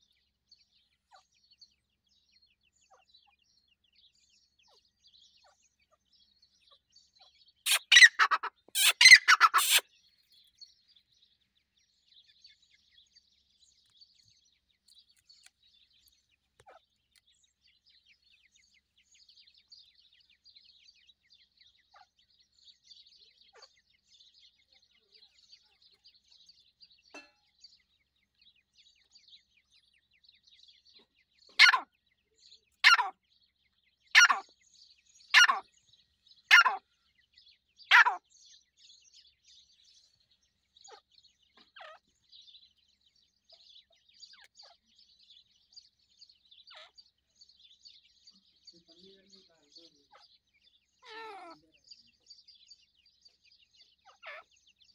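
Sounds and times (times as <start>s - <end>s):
chicks peeping: 7.7s - 9.8s
loud harsh bird bursts: 7.7s - 9.8s.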